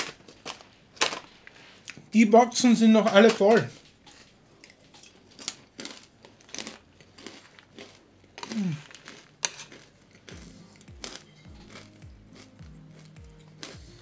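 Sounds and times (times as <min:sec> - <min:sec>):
person chewing crunchy peanuts: 0:00.0 - 0:02.1, 0:04.8 - 0:14.0
person humming: 0:08.6 - 0:08.8.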